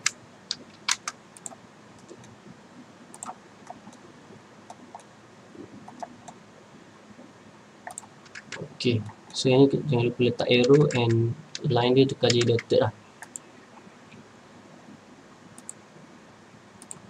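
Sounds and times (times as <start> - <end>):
keyboard and mouse clicks: 0.0 - 2.4, 3.1 - 4.0, 4.7 - 6.4, 7.8 - 9.3, 10.4 - 13.5, 15.6 - 15.8, 16.8 - 17.0
faint room hiss: 0.0 - 17.0.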